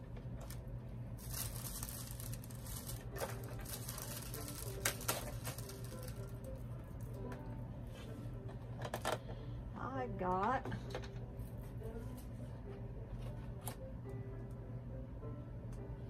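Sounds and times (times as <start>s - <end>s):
plastic bag rustling: 0.4s - 7.1s.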